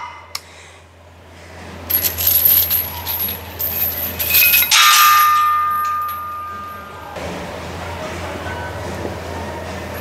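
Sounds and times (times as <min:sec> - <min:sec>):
weight plates and chains clinking: 0:01.9 - 0:07.0
ringing metal clang: 0:02.7 - 0:07.1.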